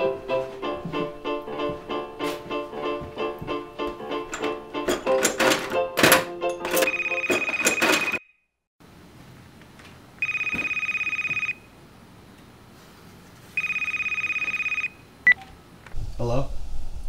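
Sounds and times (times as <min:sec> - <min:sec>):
background music: 0:00.0 - 0:08.1
cordless phone ringing: 0:06.6 - 0:08.4, 0:10.2 - 0:11.7, 0:13.6 - 0:15.0.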